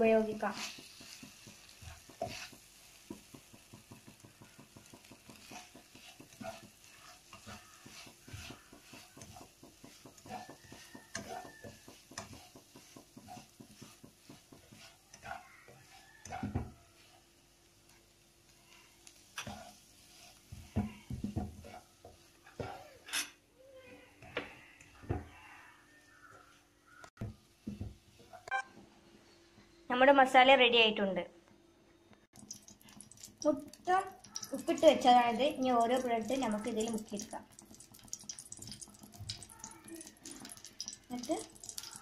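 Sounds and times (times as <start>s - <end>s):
low sizzle: 0.0s - 25.3s, 26.0s - 29.4s, 32.3s - 42.0s
spatula scraping frying pan: 0.1s - 17.5s, 19.0s - 23.4s
spatula knocking pan: 0.3s - 17.2s, 19.3s - 22.9s.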